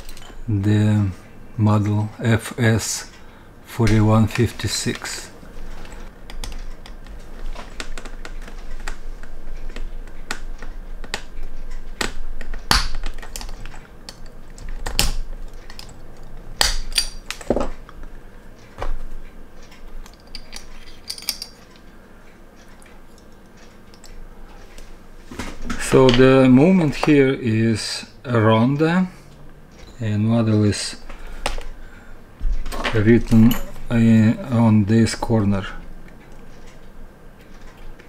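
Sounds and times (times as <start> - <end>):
metal bracelet clinking: 20.0 - 21.6, 33.2 - 33.9.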